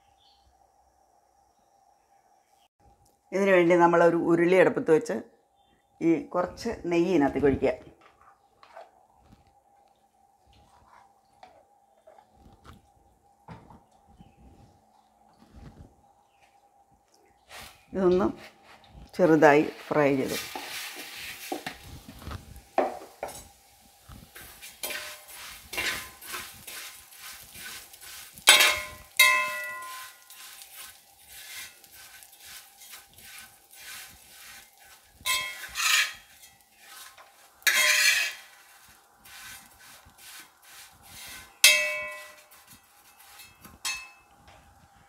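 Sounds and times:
metal ladle scraping a pot: 24.3s - 44.2s
ladle clanging on brass pot: 28.4s - 30.4s, 35.2s - 36.6s, 37.7s - 38.5s, 41.6s - 44.3s.

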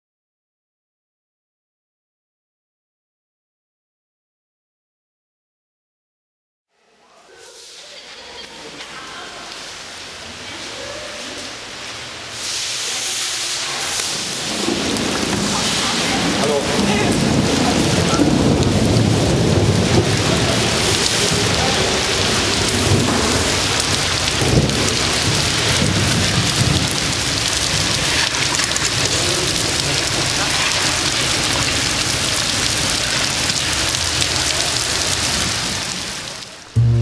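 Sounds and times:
heavy rain pouring: 7.3s - 37.0s
low rumble: 36.7s - 37.0s.

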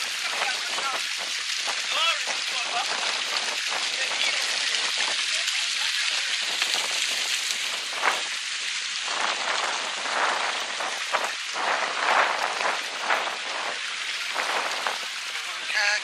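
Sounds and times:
water splashing over rocks: 0.0s - 16.0s.

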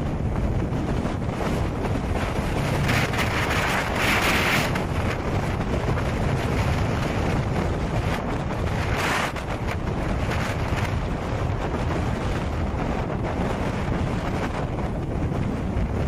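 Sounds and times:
surf washing ashore: 0.0s - 16.0s
wind buffeting microphone: 0.0s - 16.0s.

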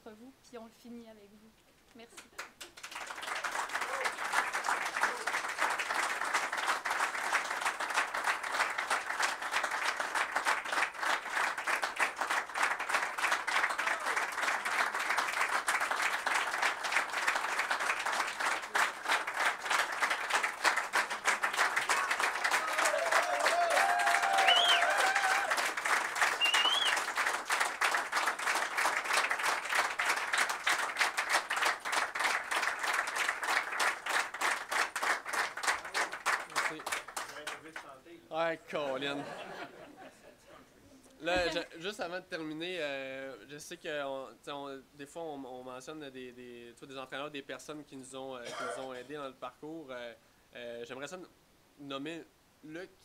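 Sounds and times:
audience applauding: 2.2s - 37.9s.

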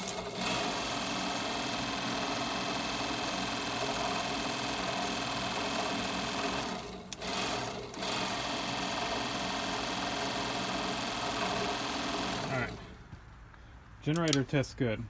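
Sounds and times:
electric motor whirring: 0.0s - 13.0s
click: 14.1s - 14.4s.

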